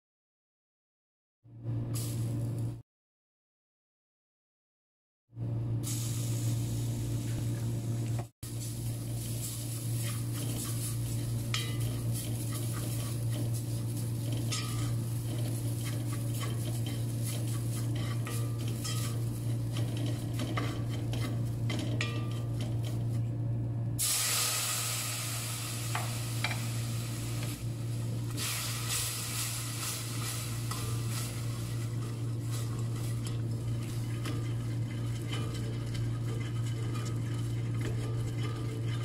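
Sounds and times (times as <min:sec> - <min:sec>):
steady low hum: 0:05.4 - 0:39.0
oil sizzling: 0:05.8 - 0:23.4, 0:24.0 - 0:39.0
spatula scraping a pan: 0:08.6 - 0:23.2, 0:28.9 - 0:39.0.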